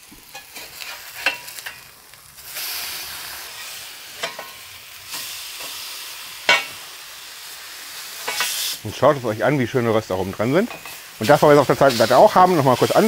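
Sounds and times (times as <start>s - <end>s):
burger patties sizzling: 0.0s - 13.0s
spatula scraping griddle: 0.3s - 6.8s, 8.0s - 8.8s.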